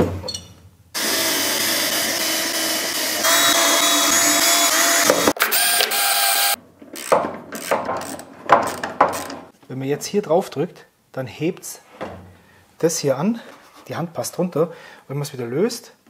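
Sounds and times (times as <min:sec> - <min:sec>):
electric drill running: 0:01.0 - 0:08.2.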